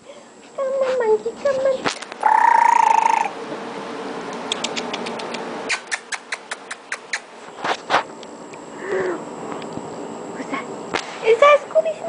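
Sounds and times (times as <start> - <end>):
dog claws clicking: 4.4 - 7.3.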